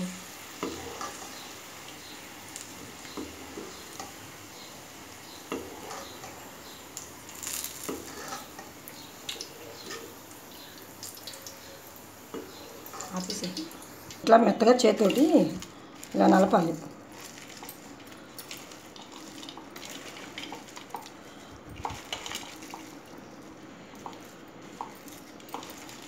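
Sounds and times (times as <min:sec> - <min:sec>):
hot oil sizzling: 0:00.0 - 0:26.0
metal strainer scraping a pan: 0:07.5 - 0:08.6.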